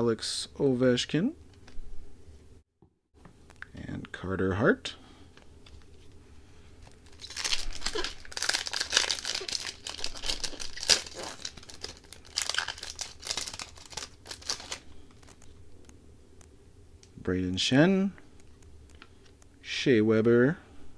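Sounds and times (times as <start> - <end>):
plastic wrapper crinkling: 6.8 - 15.8.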